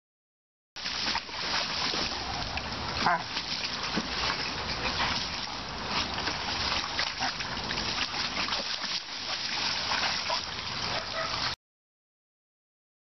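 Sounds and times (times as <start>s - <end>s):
dog splashing in water: 0.8s - 11.6s.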